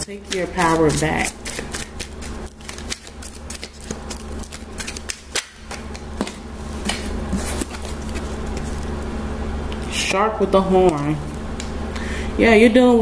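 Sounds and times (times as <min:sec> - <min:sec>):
cards being shuffled: 0:00.0 - 0:09.0
steady low hum: 0:00.0 - 0:13.0.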